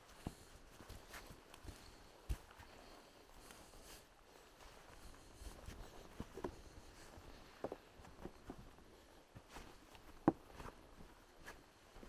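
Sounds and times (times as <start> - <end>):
footsteps on forest floor: 0.1 - 2.7.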